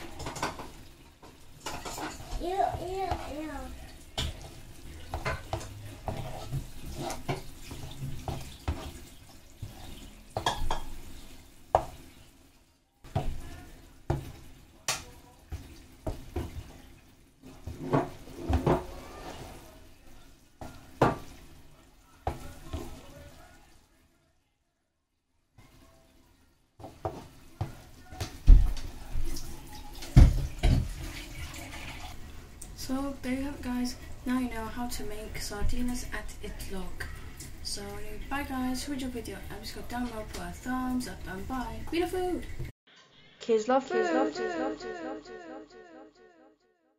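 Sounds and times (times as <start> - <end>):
utensils and dishes clattering: 0.0 - 9.1.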